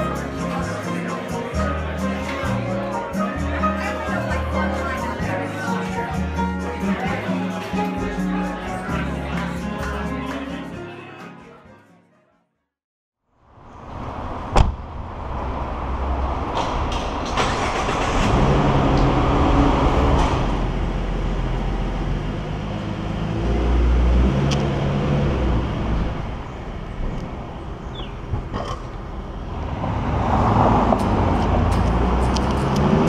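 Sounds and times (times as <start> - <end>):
car engine driving slowly: 14.5 - 33.0.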